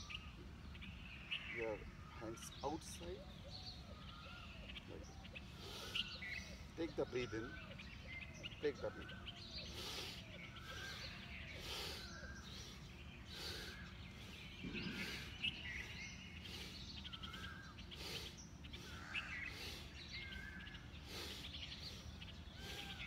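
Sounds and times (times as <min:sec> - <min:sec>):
birds chirping and calling: 0:00.0 - 0:23.0.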